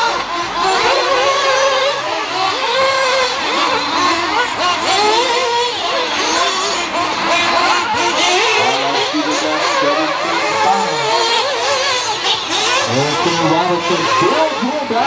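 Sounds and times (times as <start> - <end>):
small engines revving: 0.0 - 15.0.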